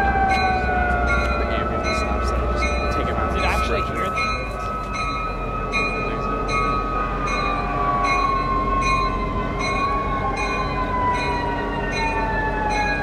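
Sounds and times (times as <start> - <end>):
locomotive engine rumble: 0.0 - 13.0
bell ringing: 0.3 - 13.0.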